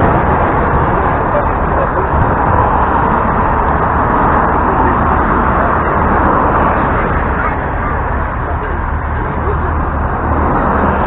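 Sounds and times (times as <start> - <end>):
bus engine droning: 0.0 - 11.0
road and body noise: 0.0 - 11.0.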